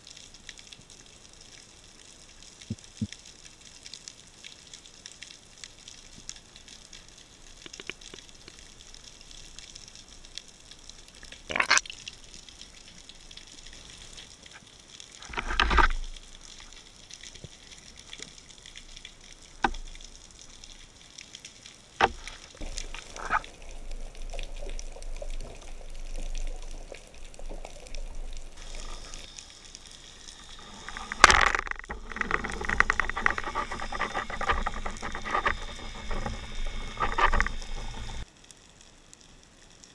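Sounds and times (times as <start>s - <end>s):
sharp underwater clicks and knocks: 2.6s - 3.2s, 7.6s - 9.8s, 11.1s - 14.6s, 15.2s - 20.8s, 22.0s - 29.5s, 30.1s - 38.3s
underwater water hiss: 22.2s - 38.3s.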